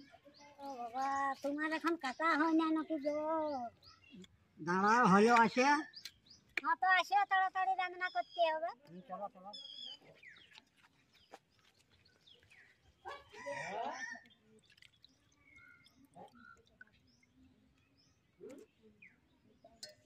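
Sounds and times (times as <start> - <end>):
small birds chirping: 0.0 - 20.0
rooster crowing: 13.3 - 14.2.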